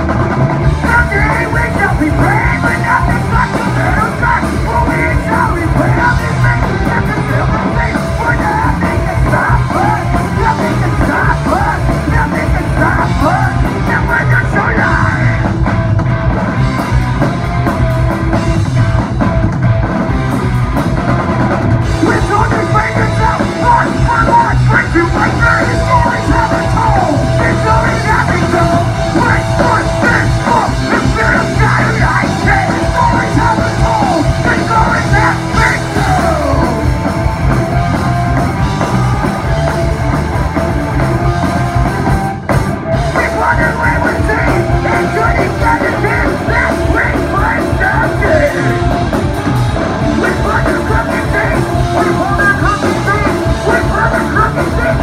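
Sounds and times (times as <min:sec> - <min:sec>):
bass guitar: 0:00.0 - 0:55.0
drum kit: 0:00.0 - 0:55.0
electric guitars: 0:00.0 - 0:55.0
person singing: 0:00.7 - 0:15.6, 0:21.9 - 0:37.1, 0:43.0 - 0:49.1, 0:50.0 - 0:55.0.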